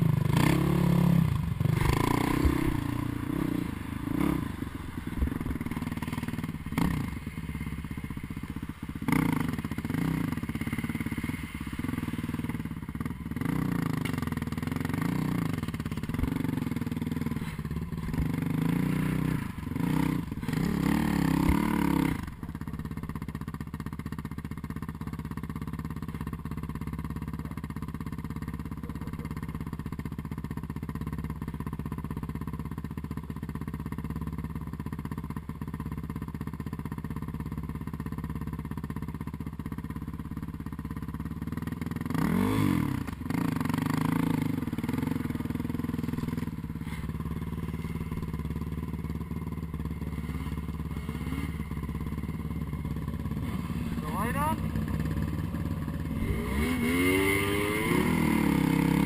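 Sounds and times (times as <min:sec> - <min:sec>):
snowmobile engine revving: 0:00.0 - 0:14.1, 0:42.2 - 0:48.4, 0:53.4 - 0:59.0.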